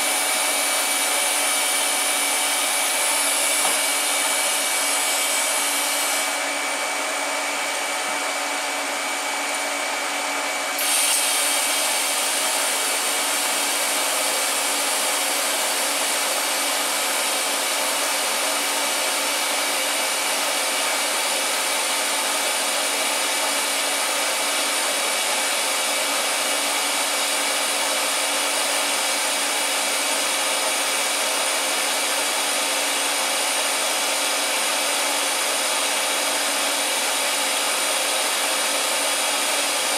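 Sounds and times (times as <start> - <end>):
welding arc hissing: 0.0 - 6.4, 10.7 - 15.9.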